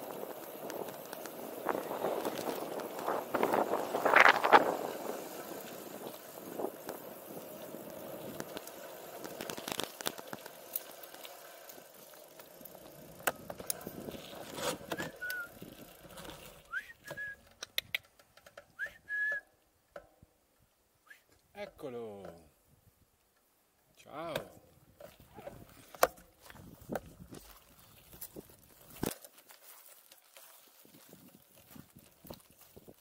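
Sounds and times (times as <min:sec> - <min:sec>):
bicycle tyre noise: 0:00.0 - 0:19.4, 0:24.9 - 0:33.0
person whistling short high notes: 0:14.9 - 0:15.5, 0:16.7 - 0:17.5, 0:18.8 - 0:19.5, 0:21.0 - 0:21.3
sharp clicks: 0:17.4 - 0:18.8.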